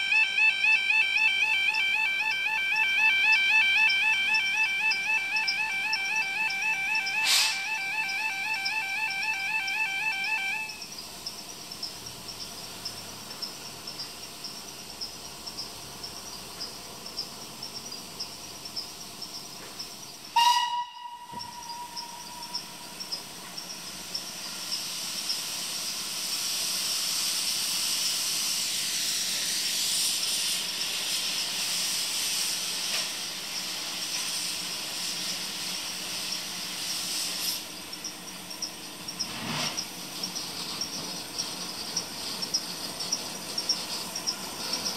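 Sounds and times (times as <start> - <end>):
steam locomotive whistle blast: 0.0 - 10.9, 20.4 - 22.8
steam hiss: 6.9 - 8.6, 18.6 - 44.9.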